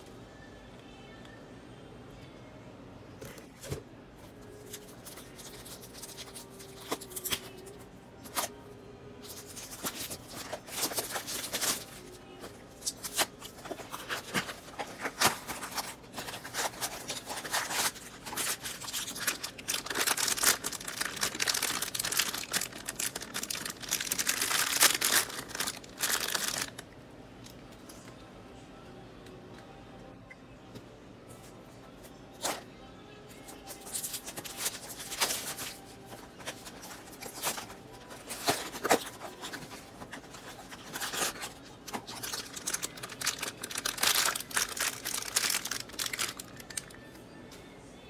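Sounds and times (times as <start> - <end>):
packaging tearing and crinkling: 9.2 - 12.1, 12.8 - 26.8, 36.4 - 46.9.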